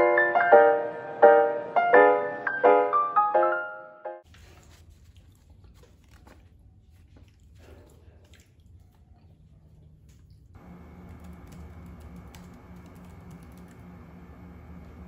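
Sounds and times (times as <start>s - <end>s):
typing on laptop keyboard: 11.1s - 13.8s.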